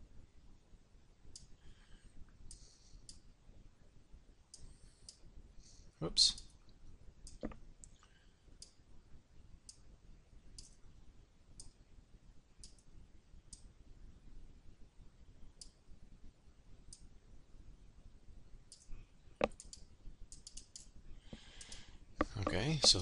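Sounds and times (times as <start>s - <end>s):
faint computer mouse clicks: 12.6s - 12.9s, 18.7s - 23.0s.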